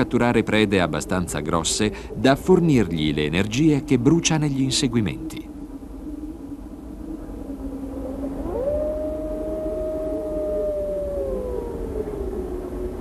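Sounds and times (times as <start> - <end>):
wolf howling: 7.2 - 13.0.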